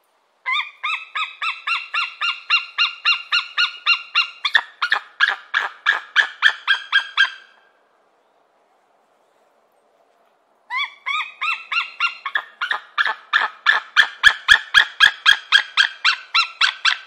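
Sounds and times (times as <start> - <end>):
eagle calling: 0.5 - 7.6, 10.7 - 17.0.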